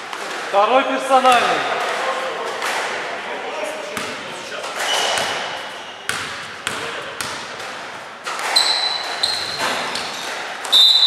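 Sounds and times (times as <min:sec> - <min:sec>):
sneakers squeaking on court: 0:04.0 - 0:07.6, 0:08.3 - 0:11.0
basketball bouncing on wooden floor: 0:05.0 - 0:10.2.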